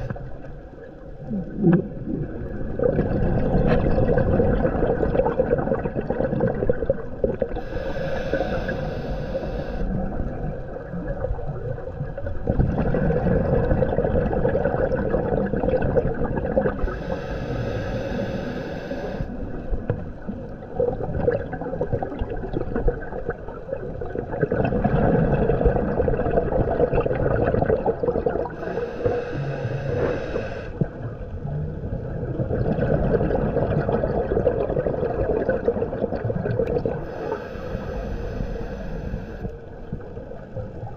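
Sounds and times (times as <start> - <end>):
bubbly gurgling exhales: 1.1 - 17.2, 19.2 - 40.9
regulator hissing inhales: 7.6 - 10.0, 16.8 - 19.4, 28.6 - 30.8, 37.0 - 39.5.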